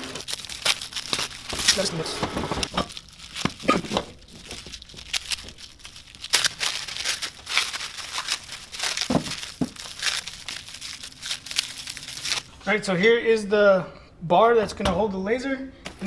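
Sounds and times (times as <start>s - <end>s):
plastic wrapping tearing: 0.0s - 12.5s.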